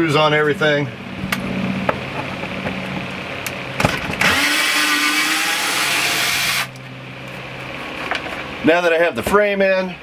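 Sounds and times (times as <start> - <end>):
cordless drill driving a screw: 4.2 - 6.7.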